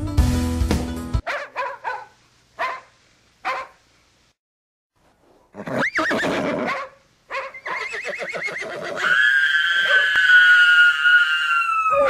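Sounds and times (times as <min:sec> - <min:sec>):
animal yelp: 0:05.6 - 0:12.0
dog howling: 0:09.0 - 0:12.0.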